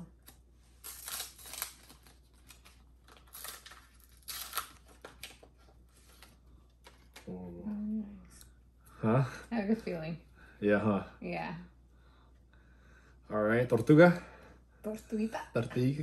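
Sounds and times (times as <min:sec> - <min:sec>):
card pack wrapper tearing: 0:00.2 - 0:05.4.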